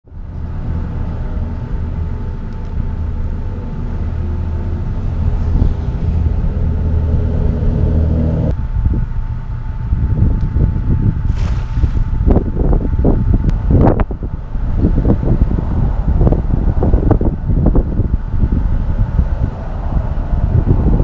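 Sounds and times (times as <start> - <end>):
vehicle engine humming: 0.0 - 21.0
wind rumble on microphone: 0.0 - 21.0.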